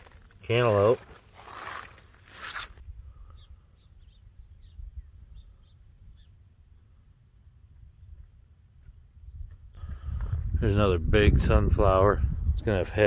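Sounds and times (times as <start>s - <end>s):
birds chirping: 3.0s - 10.2s
cricket chirping: 3.2s - 10.3s.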